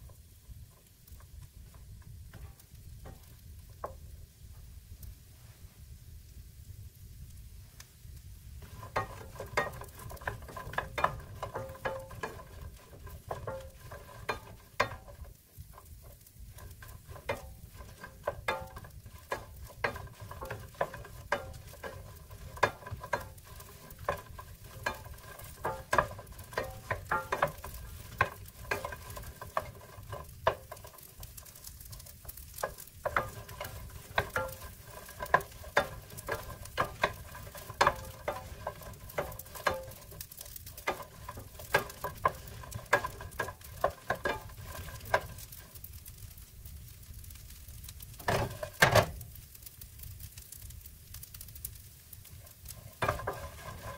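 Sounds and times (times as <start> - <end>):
wooden spatula clacking in pan: 0.0 - 4.1, 8.6 - 46.4, 48.0 - 49.4, 51.3 - 53.9
frying pan ringing: 8.6 - 45.7, 48.2 - 49.2, 52.8 - 53.9.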